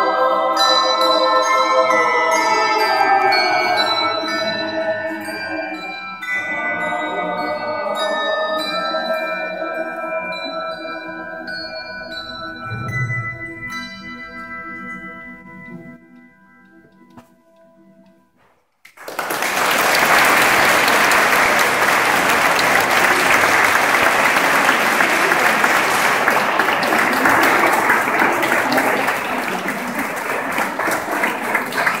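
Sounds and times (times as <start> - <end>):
audience applause: 18.9 - 32.0.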